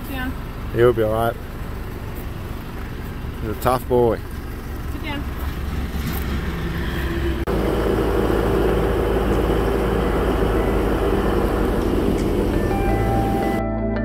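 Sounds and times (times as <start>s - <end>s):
tyres on dirt track: 0.0s - 13.6s
vehicle engine driving: 0.0s - 13.6s.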